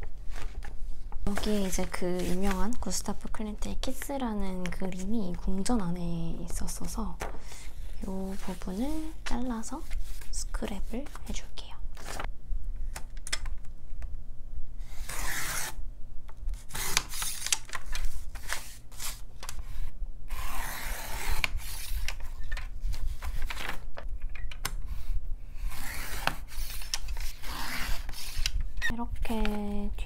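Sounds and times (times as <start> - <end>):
paper handling: 16.7 - 19.6, 21.2 - 24.1.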